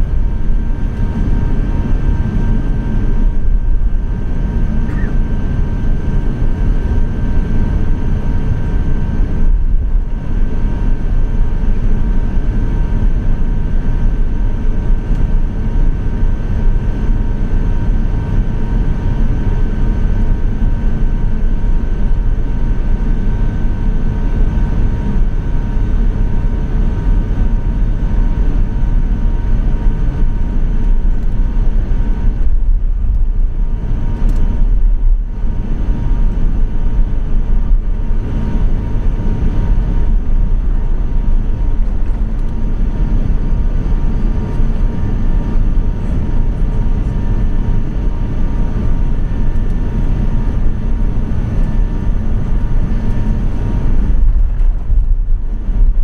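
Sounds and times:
airplane cabin rumble: 0.0 - 56.0
faint whining tones: 2.4 - 5.6.

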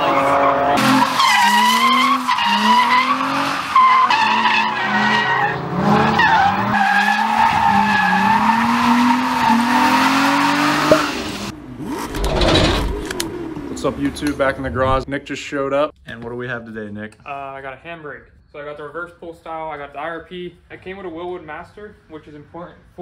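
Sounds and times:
tire squeal: 0.0 - 12.8
car engine revving: 0.0 - 14.2.

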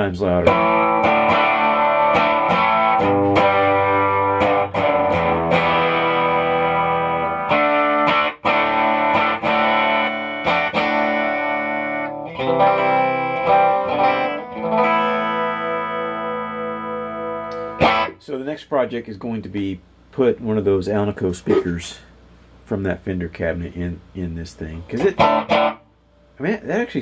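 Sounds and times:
electric guitar chords and notes: 0.0 - 18.2, 24.9 - 25.9.

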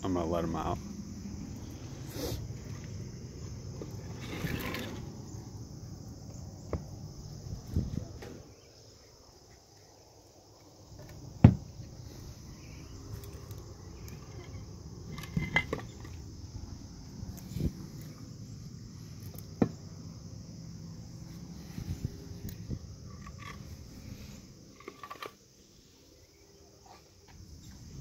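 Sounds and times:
crickets chirring: 0.0 - 28.0
knocks and clunks: 11.0 - 11.9.

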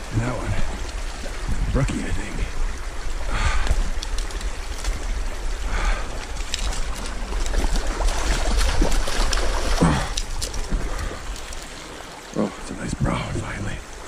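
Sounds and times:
fish splashing in a stream: 2.7 - 12.4.

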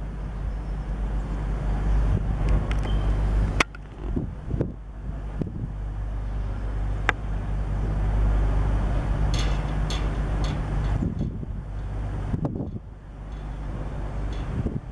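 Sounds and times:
distant diesel train engines droning: 0.0 - 14.9
sharp clicks: 3.6 - 4.2.

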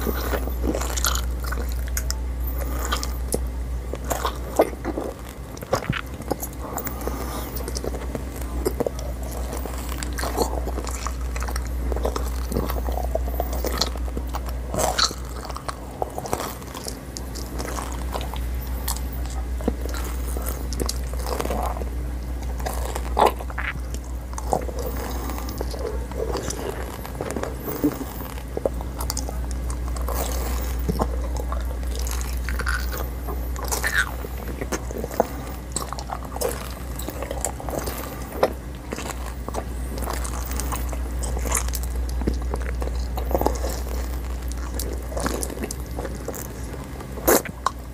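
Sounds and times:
chewing: 0.0 - 47.9
gum shell crunching: 0.0 - 47.9.

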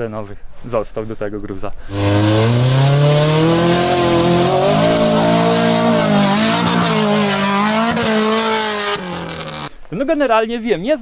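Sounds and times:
car engine revving hard: 1.9 - 9.7.

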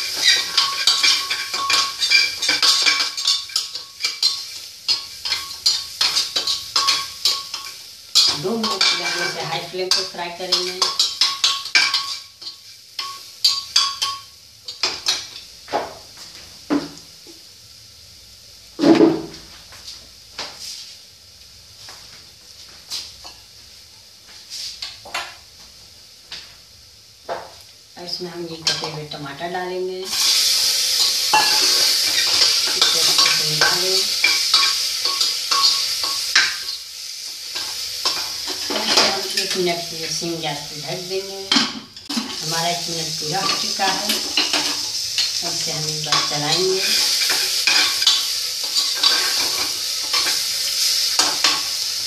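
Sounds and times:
metal spoon scraping a pot: 0.0 - 12.5, 46.8 - 50.4
faint sizzle: 0.0 - 52.0.

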